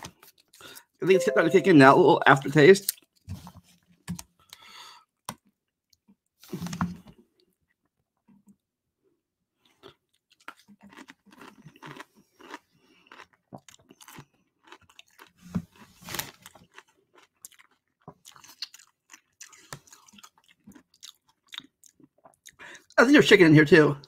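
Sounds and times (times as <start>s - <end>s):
person chewing: 9.6s - 23.0s.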